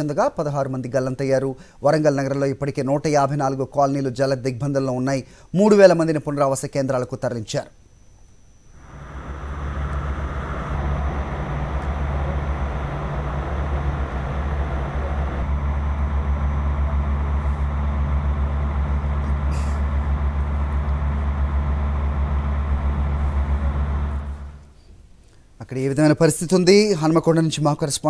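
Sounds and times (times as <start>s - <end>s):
vehicle engine droning: 8.8s - 24.8s.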